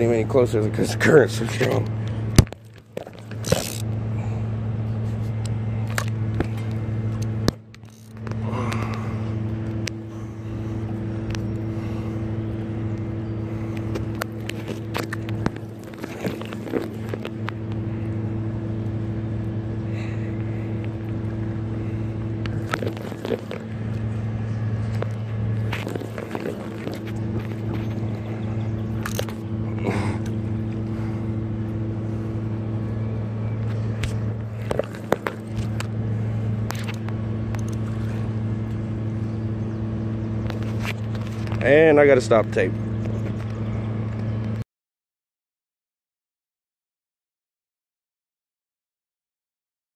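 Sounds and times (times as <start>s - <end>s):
steady low hum: 0.0s - 44.6s
handling clicks and scrapes: 0.8s - 4.0s, 4.8s - 9.0s, 13.6s - 17.8s, 22.4s - 30.8s, 33.6s - 38.3s, 40.4s - 41.7s.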